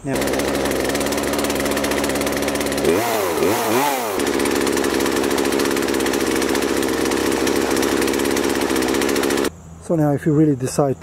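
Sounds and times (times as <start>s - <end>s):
chainsaw engine idling and revving: 0.0s - 9.5s.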